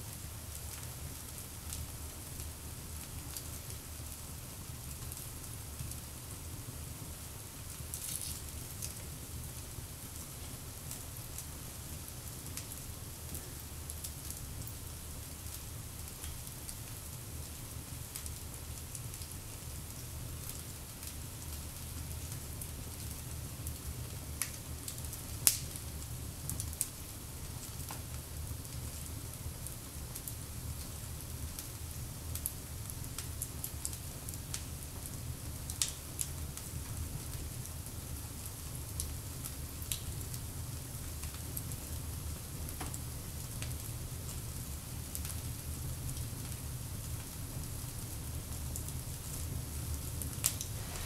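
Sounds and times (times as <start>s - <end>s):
low fire rumble: 0.1s - 51.0s
wood fire crackling: 0.1s - 51.0s
sharp pops of fire: 25.4s - 25.8s.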